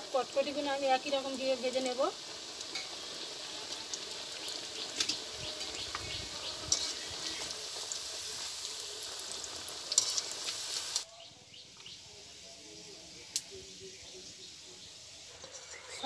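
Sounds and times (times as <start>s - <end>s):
dough sizzling in hot oil: 0.0s - 16.0s
slotted spoon stirring in oil: 1.8s - 8.7s, 9.4s - 11.0s, 15.4s - 16.0s.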